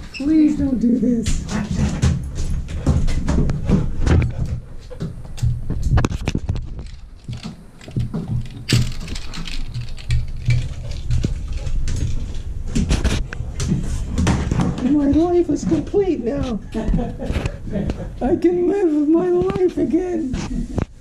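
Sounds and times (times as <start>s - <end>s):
dog claws clicking on hard floor: 1.3s - 16.5s.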